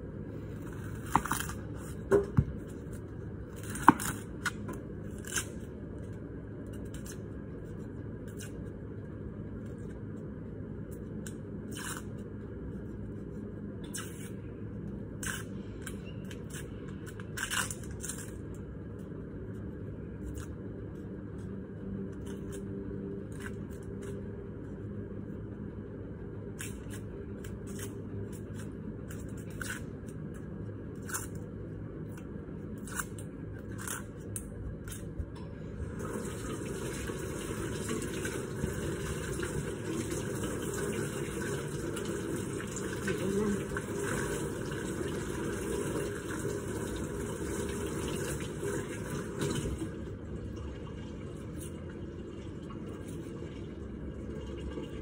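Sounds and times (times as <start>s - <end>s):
low background hum: 0.0s - 55.0s
knife scraping onion skin: 3.5s - 5.8s, 11.6s - 12.3s, 13.8s - 14.5s, 15.2s - 18.5s, 26.5s - 31.4s, 32.7s - 35.1s
tap water running into sink: 36.0s - 50.0s.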